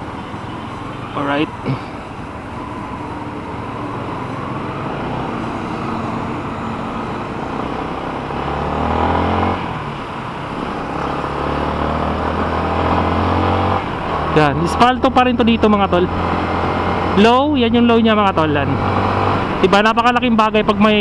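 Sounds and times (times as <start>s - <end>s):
wind and road noise: 0.0s - 21.0s
motorcycle engine accelerating: 3.7s - 19.7s.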